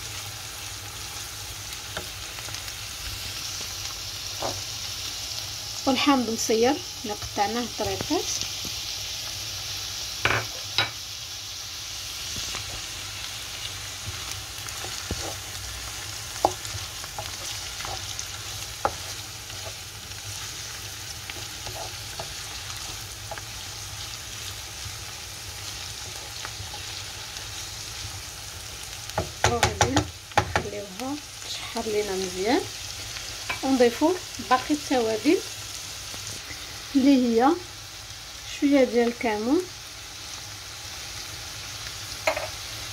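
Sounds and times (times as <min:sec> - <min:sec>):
food sizzling in a frying pan: 0:00.0 - 0:42.9
wooden spoon stirring: 0:13.8 - 0:24.6
spoon knocking against pan: 0:29.2 - 0:30.7, 0:42.2 - 0:42.5.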